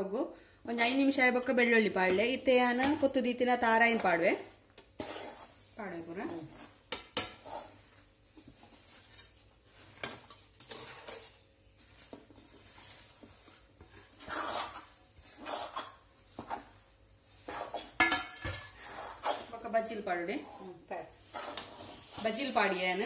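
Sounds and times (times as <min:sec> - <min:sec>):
metal spoon scraping a metal pan: 0:05.0 - 0:07.9, 0:09.8 - 0:11.5, 0:12.4 - 0:16.8, 0:17.4 - 0:23.0.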